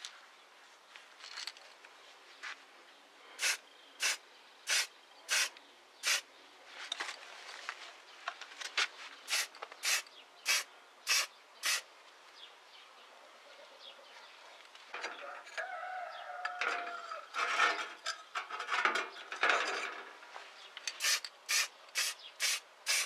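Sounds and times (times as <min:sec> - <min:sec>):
spray paint can hissing: 0:03.4 - 0:06.2, 0:09.3 - 0:11.8, 0:21.0 - 0:23.0.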